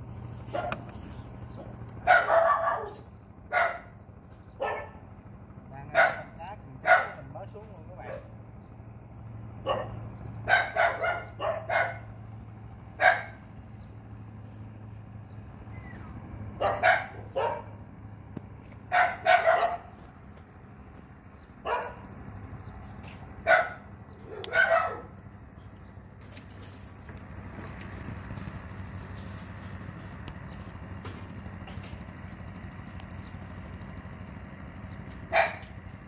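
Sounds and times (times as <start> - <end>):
dog barking: 0.5 - 0.9, 2.0 - 4.0, 4.6 - 5.0, 5.9 - 7.3, 8.0 - 8.3, 9.6 - 12.2, 13.0 - 13.4, 16.6 - 17.8, 18.9 - 20.0, 21.6 - 22.1, 23.4 - 25.2, 35.3 - 35.8.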